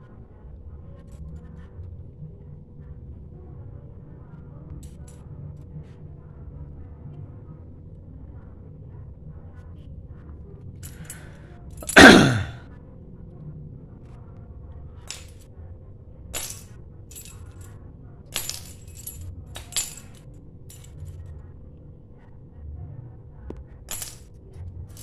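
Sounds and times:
small keys jingling: 16.4s - 17.7s, 18.4s - 20.9s.

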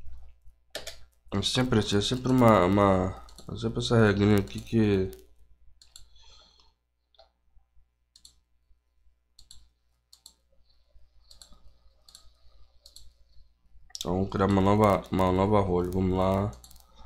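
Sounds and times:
mouse and keyboard clicks: 8.2s - 8.4s, 11.2s - 13.2s, 14.8s - 17.0s.

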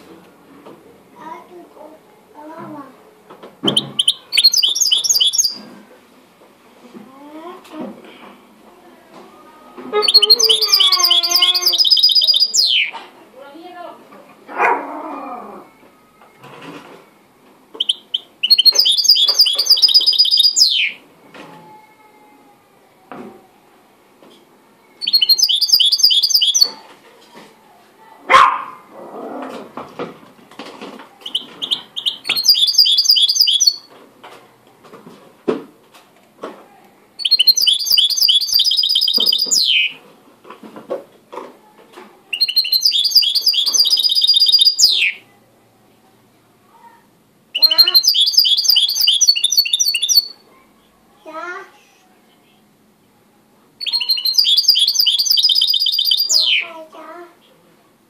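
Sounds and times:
bird singing rattling trills: 3.6s - 5.6s, 10.0s - 12.9s, 17.8s - 21.0s, 25.0s - 26.8s, 31.2s - 33.9s, 37.2s - 39.9s, 42.4s - 45.2s, 47.6s - 50.4s, 53.8s - 56.7s.

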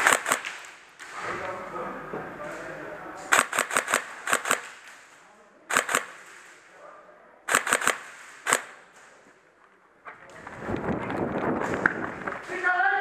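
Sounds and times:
airsoft pistol shots: 0.0s - 1.2s, 7.5s - 8.8s.

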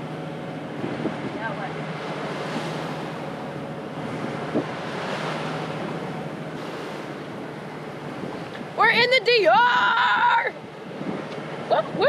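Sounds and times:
boat engine humming: 0.0s - 12.0s
bow wave rushing along hull: 0.0s - 12.0s
wind buffeting microphone: 0.0s - 12.0s.

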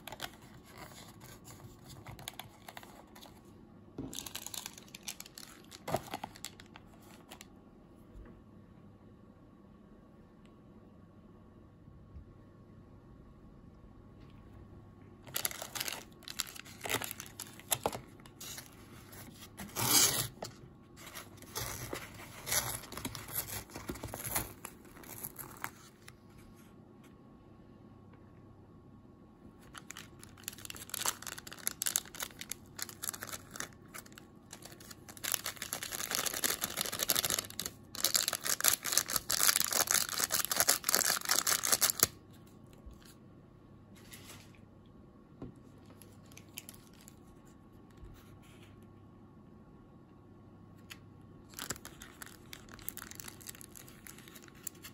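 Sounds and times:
plastic packets crinkling and tearing: 4.1s - 7.4s, 15.2s - 26.1s, 29.6s - 42.2s, 46.0s - 47.3s, 51.5s - 54.9s.

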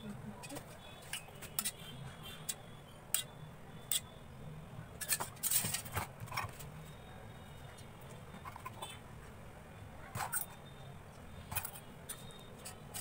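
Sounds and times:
steel bowl and utensils clicking: 2.5s - 3.3s, 5.0s - 6.4s.

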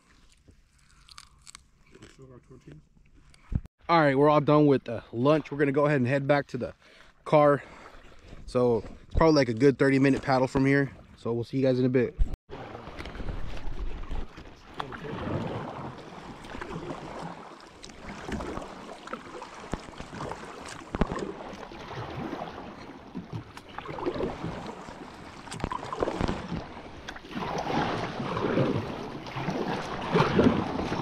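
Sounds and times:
kayak paddle strokes in water: 12.5s - 31.0s.

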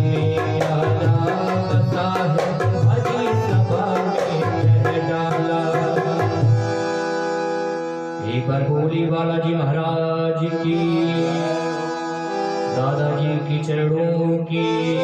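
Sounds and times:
barrel drum rhythm: 0.0s - 7.0s.

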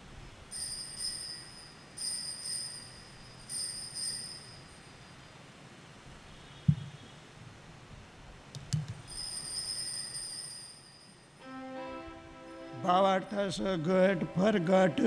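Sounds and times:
altar bell ringing: 0.5s - 5.2s, 9.1s - 11.5s.

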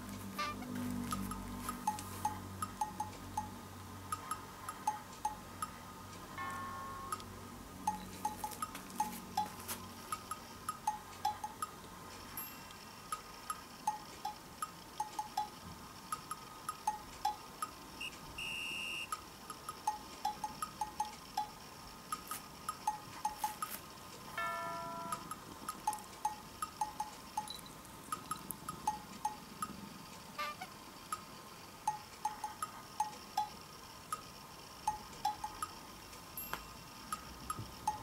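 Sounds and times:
bell-like plinking music: 6.4s - 7.2s, 7.8s - 9.6s, 12.3s - 13.0s, 24.4s - 25.4s, 36.4s - 36.8s.

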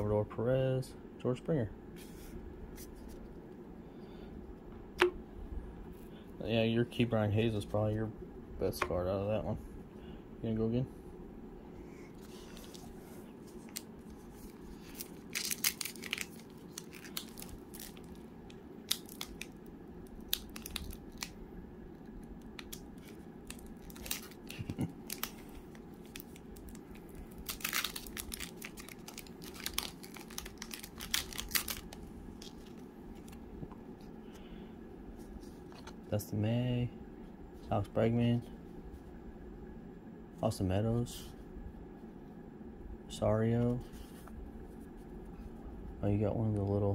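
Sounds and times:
faint steady hum: 0.0s - 46.9s
cards being handled: 12.2s - 18.2s
wrapper tearing and crinkling: 13.6s - 18.2s, 18.8s - 21.4s, 22.6s - 33.4s.

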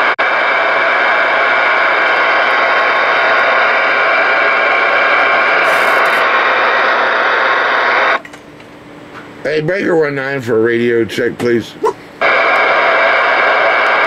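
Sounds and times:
radio static hiss: 0.0s - 8.2s, 12.2s - 14.0s.

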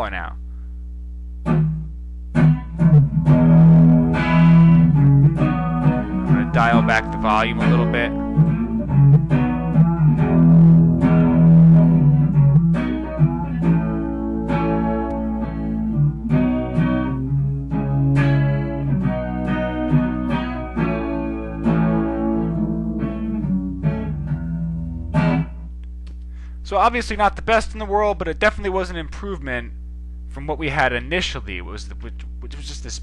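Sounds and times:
steady low hum: 0.0s - 33.0s
plucked guitar piece: 1.4s - 26.1s.

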